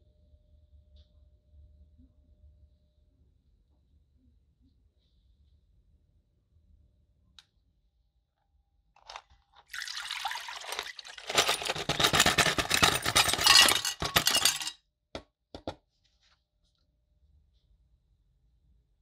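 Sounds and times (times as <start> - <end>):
liquid splashing into glass dish: 9.7 - 11.2
metal parts clinking: 10.2 - 14.8.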